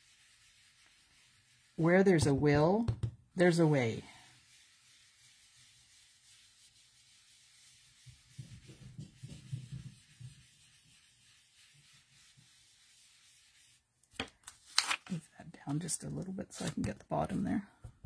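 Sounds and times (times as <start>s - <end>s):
brush scrubbing on cardstock: 0.0s - 2.8s, 3.4s - 13.9s.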